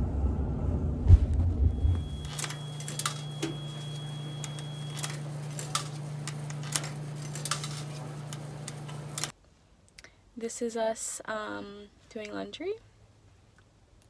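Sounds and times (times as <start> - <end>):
steady low hum: 0.0 - 9.3
coins clicking into coin slot: 2.2 - 9.3.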